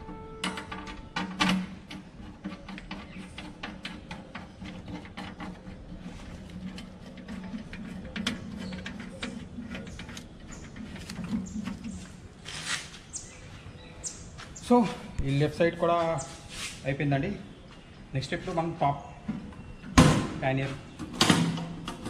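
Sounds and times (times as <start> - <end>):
small metal clicks and knocks: 0.1 - 5.5.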